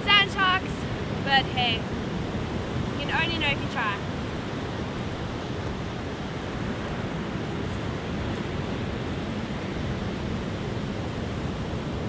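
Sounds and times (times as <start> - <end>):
ocean surf breaking on beach: 0.0 - 12.0
wind: 0.0 - 12.0.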